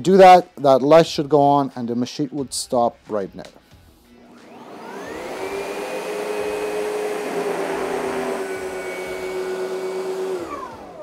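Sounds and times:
upright vacuum motor running: 4.2 - 11.0.

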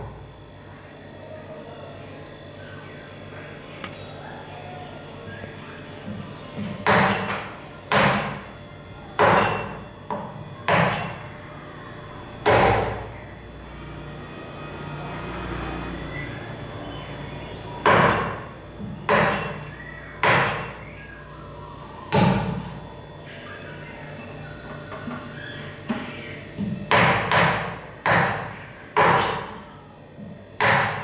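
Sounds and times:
cleaver chopping on wooden board: 6.8 - 8.4, 9.2 - 11.1, 19.1 - 19.6, 26.9 - 29.6, 30.6 - 31.0.

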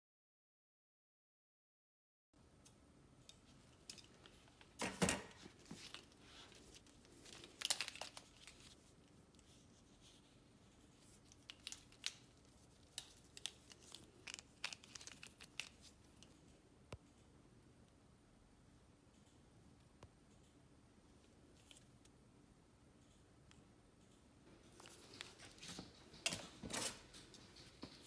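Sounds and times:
plastic crinkling and rustling: 3.4 - 16.4, 24.6 - 28.0.

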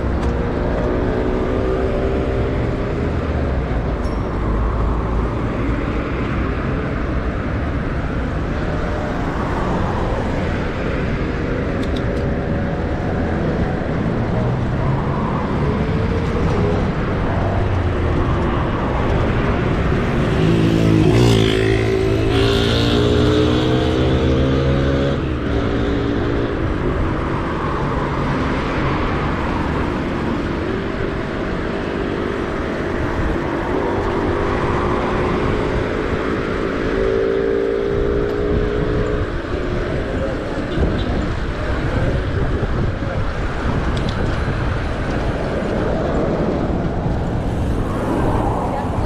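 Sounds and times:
wind and road noise: 0.0 - 49.0
vehicle engine speeding up: 13.0 - 40.6.

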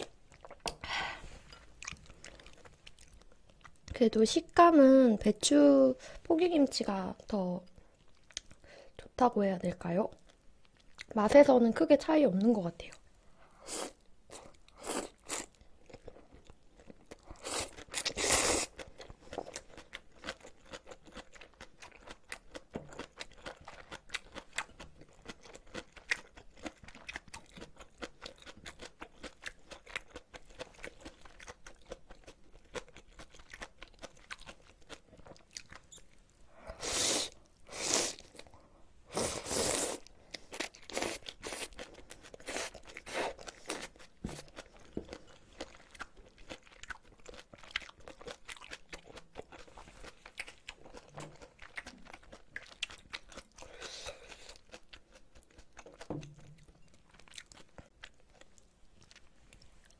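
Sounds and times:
chewing with crunchy wet bites: 1.6 - 4.0, 13.9 - 36.4, 39.9 - 59.9.

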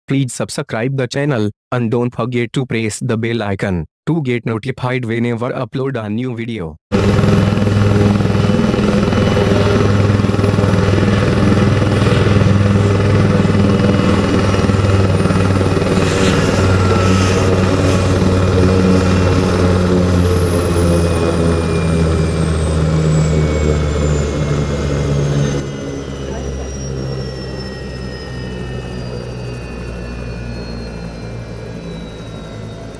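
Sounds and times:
helicopter rotor beating: 6.9 - 32.9
high turbine whine: 6.9 - 32.9.

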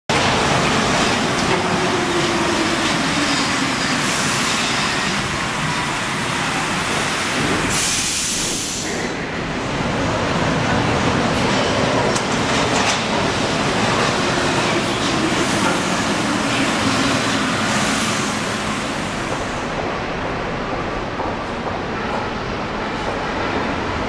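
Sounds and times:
metro train rumbling: 0.1 - 24.0.

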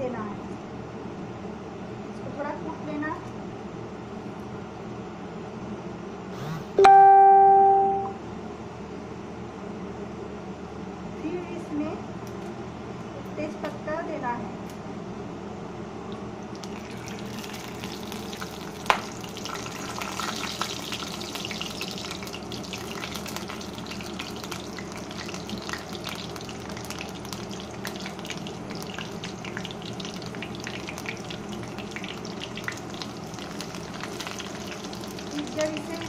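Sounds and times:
spices sizzling in hot oil: 16.5 - 36.0.

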